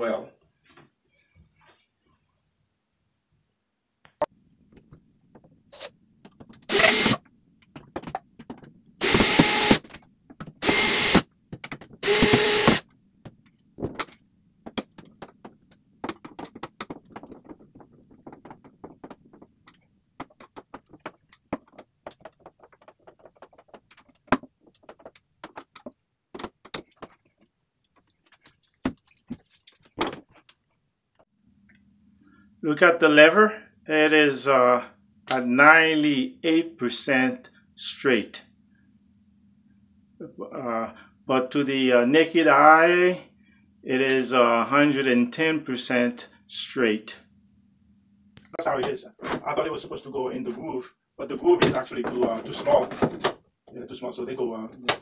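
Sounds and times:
cordless drill driving screws: 6.7s - 7.2s, 9.0s - 9.8s, 10.6s - 11.2s, 12.0s - 12.8s.

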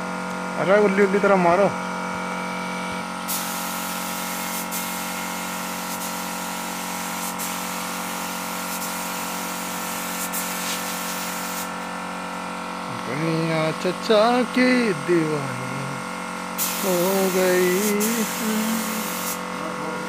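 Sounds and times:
air compressor humming: 0.0s - 20.0s
spray gun hissing: 3.2s - 11.9s, 16.6s - 19.5s.

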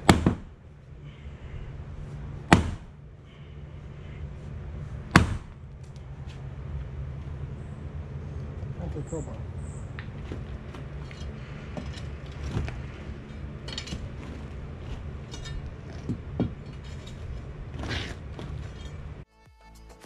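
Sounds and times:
engine running: 0.0s - 19.3s
tools knocking and clinking: 9.9s - 19.1s.

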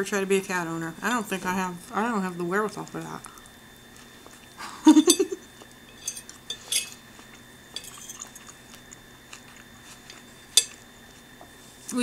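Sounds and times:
chewing: 2.8s - 4.6s, 5.4s - 11.6s
fork scraping a plate: 5.9s - 8.6s, 9.4s - 10.8s.

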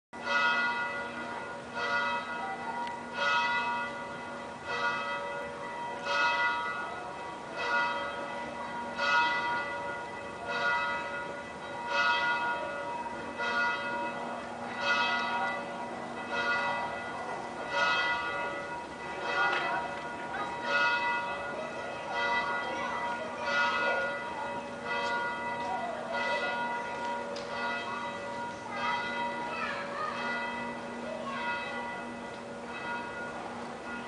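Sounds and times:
church bell tolling: 0.2s - 34.0s.

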